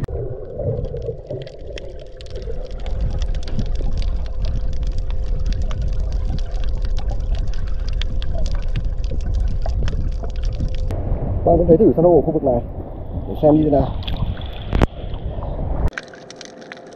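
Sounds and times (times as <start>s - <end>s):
dense crackle of sharp clicks: 0.0s - 10.9s, 15.9s - 16.9s
underwater rumble of moving water: 0.0s - 16.8s.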